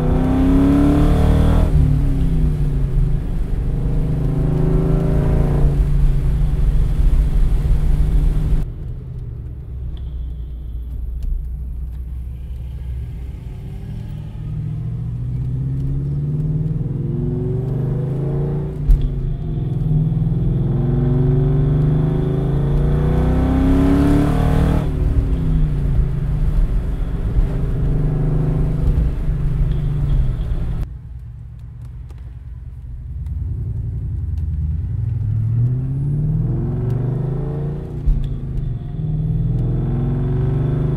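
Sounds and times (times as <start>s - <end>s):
car engine revving: 0.0s - 8.6s, 11.5s - 30.8s, 33.4s - 40.9s.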